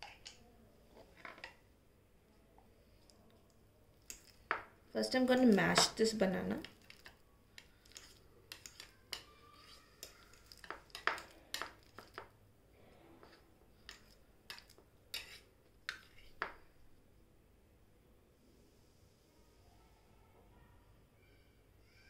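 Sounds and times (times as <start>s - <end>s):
utensil tapping and scraping bowl: 5.3s - 12.3s, 13.2s - 16.6s.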